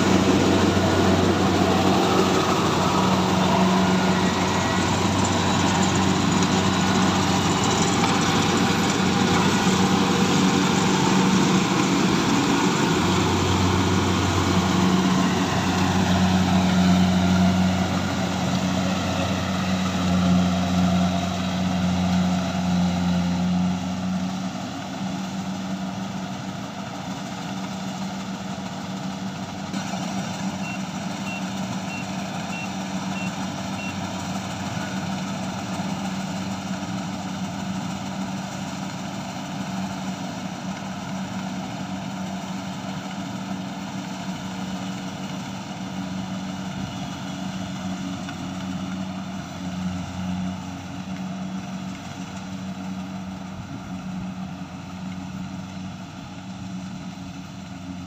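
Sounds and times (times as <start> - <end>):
combine harvester engine drone: 0.0 - 58.0.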